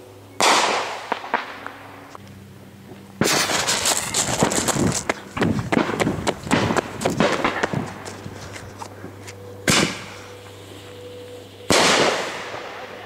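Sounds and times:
dense crackling of fireworks: 0.4s - 1.8s, 3.2s - 8.2s, 11.7s - 13.0s
firework bang: 3.2s - 4.7s, 9.7s - 10.2s, 11.7s - 12.8s.

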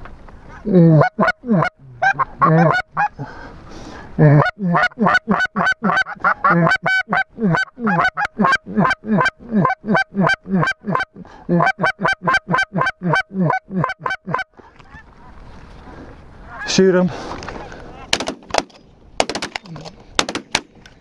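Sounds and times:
goose calls honking and clucking: 0.5s - 3.2s, 4.2s - 15.4s, 16.4s - 16.9s.

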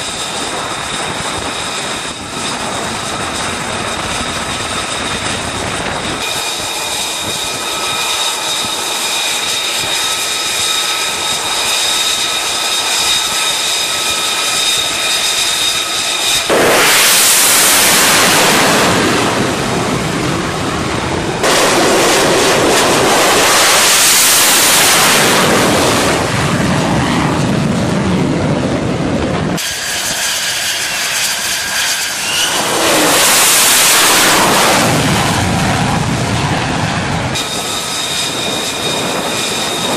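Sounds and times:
jet engine whine: 0.0s - 39.9s
loud jet roar: 0.0s - 39.9s.

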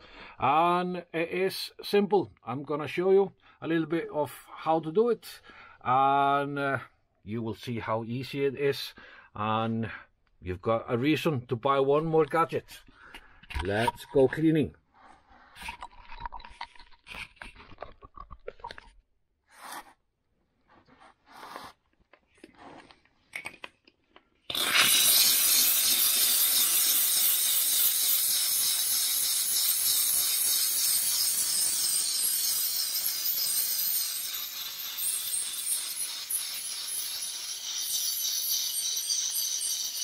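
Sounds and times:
steam cleaner hissing: 24.5s - 40.0s.

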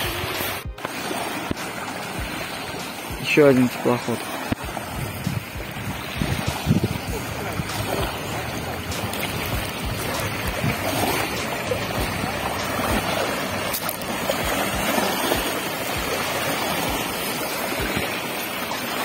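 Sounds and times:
river water lapping: 0.0s - 19.0s
wind buffeting microphone: 4.5s - 18.4s.

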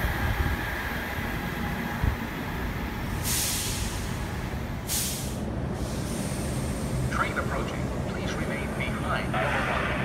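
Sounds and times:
train rumble: 0.0s - 10.0s
air hiss bursts: 3.2s - 4.1s, 4.9s - 6.9s.

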